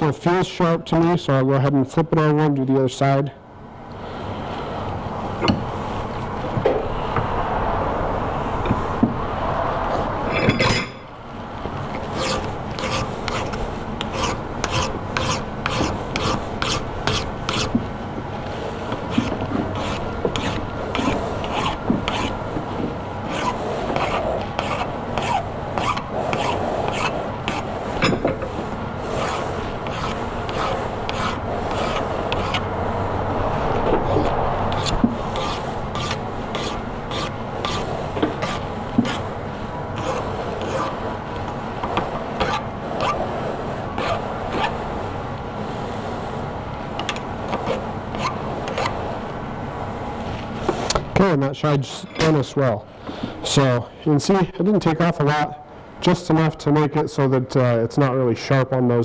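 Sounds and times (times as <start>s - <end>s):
file rasping on steel: 12.0s - 17.8s, 18.9s - 22.4s, 23.2s - 27.7s, 29.0s - 32.7s, 34.0s - 39.3s, 40.0s - 41.0s, 42.4s - 43.2s, 44.0s - 44.7s.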